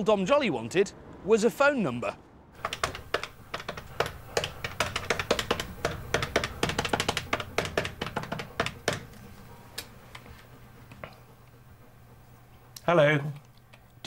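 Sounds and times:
rapid typing on a keyboard: 0:02.6 - 0:09.4.

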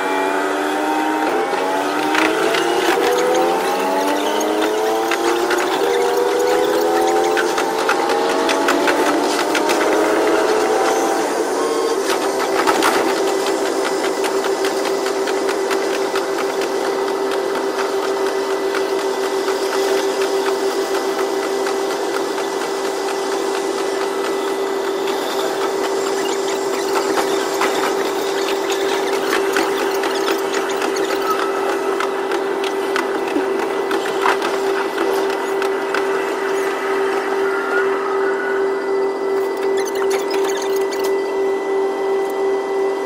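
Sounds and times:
high-pitched engine hum: 0:00.0 - 0:43.0
running gear clicks and rattles: 0:01.6 - 0:11.2, 0:12.0 - 0:36.6.

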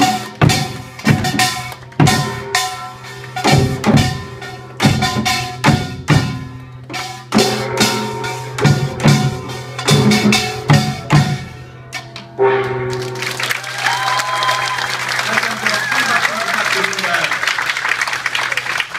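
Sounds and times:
gongs and drums playing: 0:00.0 - 0:17.4
audience applause: 0:12.9 - 0:18.9.

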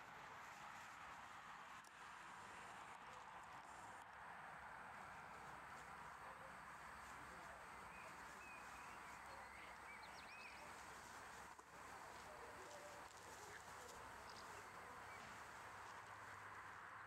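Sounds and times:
faint bird chirps: 0:07.3 - 0:15.6.

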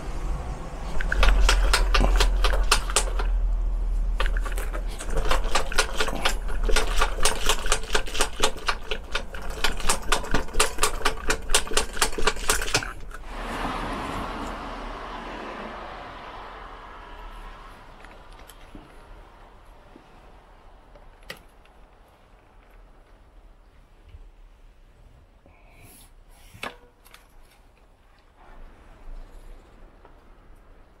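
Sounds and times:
bicycle front end rattling: 0:00.8 - 0:03.4, 0:04.1 - 0:13.2.

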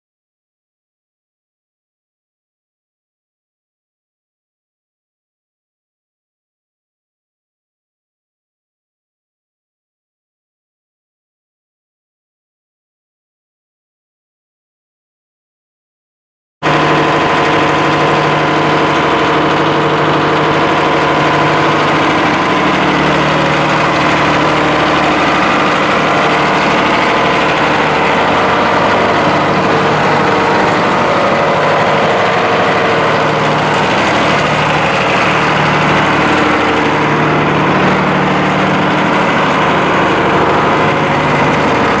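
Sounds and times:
diesel generator engine running: 0:16.6 - 0:42.0.

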